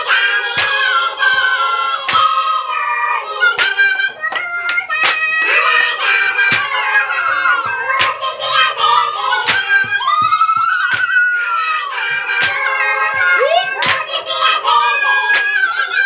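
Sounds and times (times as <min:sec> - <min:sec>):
women singing together: 0:00.0 - 0:16.0
hand claps: 0:00.1 - 0:16.0.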